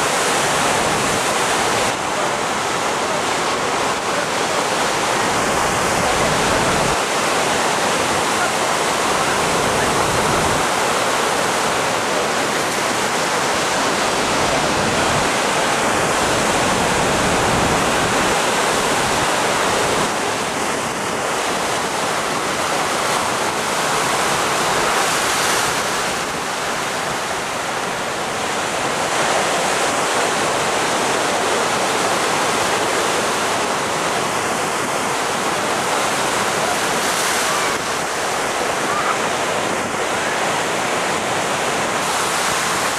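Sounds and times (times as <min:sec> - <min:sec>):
ocean surf breaking: 0:00.0 - 0:42.9.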